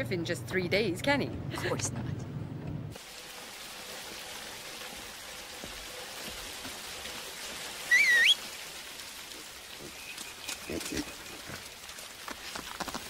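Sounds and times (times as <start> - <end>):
steady rain falling: 2.9 - 13.0
person whistling: 7.9 - 8.4.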